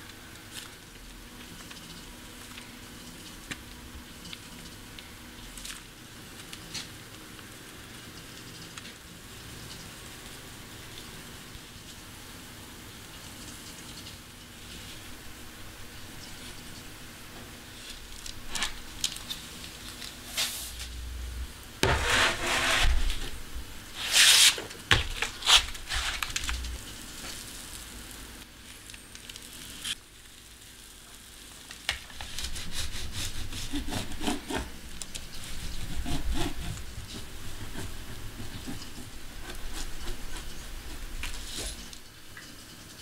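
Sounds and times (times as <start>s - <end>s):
utensils rubbing and scraping: 21.8s - 26.9s, 32.2s - 42.0s.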